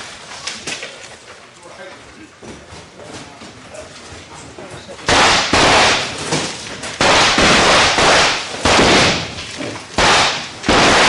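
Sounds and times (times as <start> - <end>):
gunfire bangs: 5.1 - 11.0.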